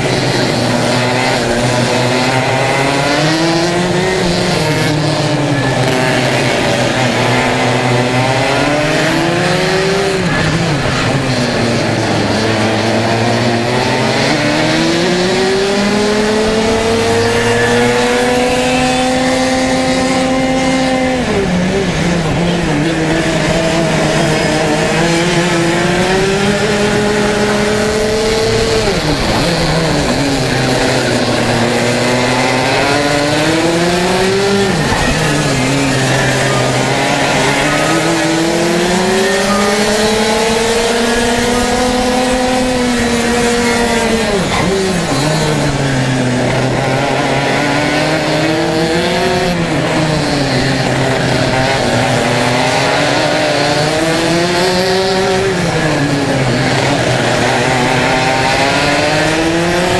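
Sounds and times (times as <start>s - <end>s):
racing kart engine revving: 0.0s - 59.9s.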